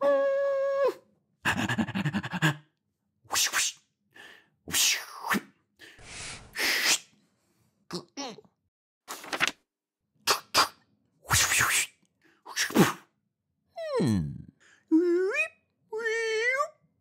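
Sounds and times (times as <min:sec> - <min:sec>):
cartoon dog whining hum: 0:00.0 - 0:01.1, 0:14.9 - 0:16.8
cartoon dog puffs and sniffs: 0:05.9 - 0:07.2.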